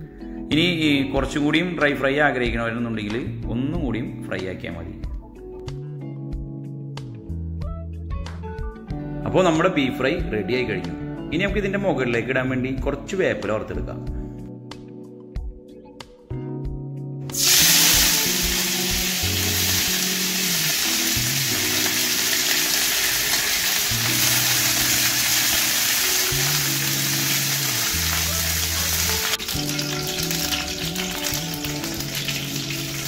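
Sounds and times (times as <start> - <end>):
leaves sizzling in hot oil: 17.3 - 33.0.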